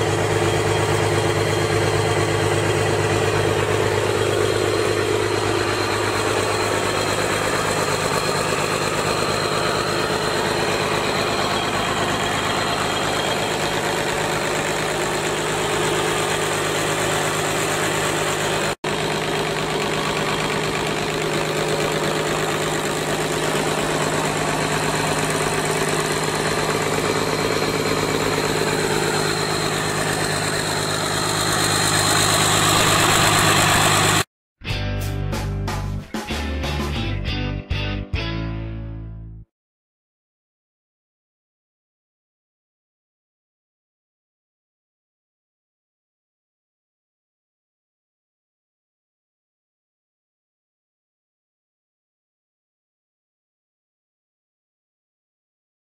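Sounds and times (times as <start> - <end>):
diesel engine idling: 0.0 - 34.3.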